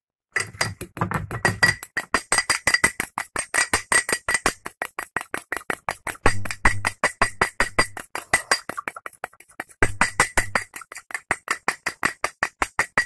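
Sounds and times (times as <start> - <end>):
spoon scraping ceramic bowl: 8.2 - 9.1.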